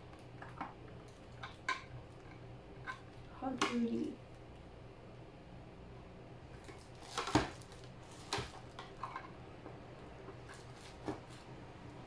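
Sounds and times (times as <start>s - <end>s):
knocks and clatter of handling: 6.6s - 9.4s.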